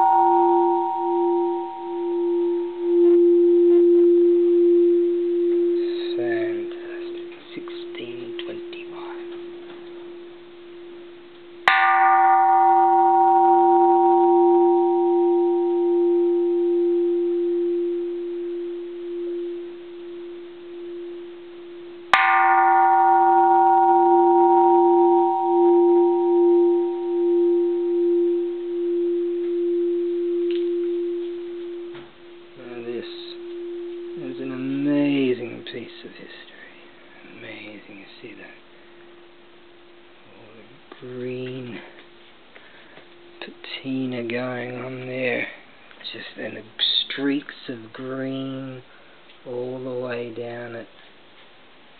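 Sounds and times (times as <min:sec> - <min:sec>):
temple bell strikes ringing: 0:00.0 - 0:35.7
low bell hum: 0:00.0 - 0:45.6.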